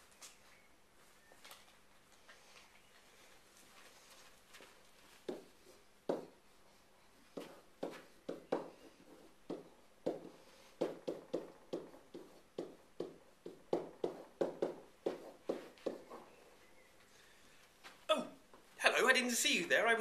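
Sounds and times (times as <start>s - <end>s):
pen knocking on whiteboard: 5.2s - 6.4s, 7.3s - 16.2s.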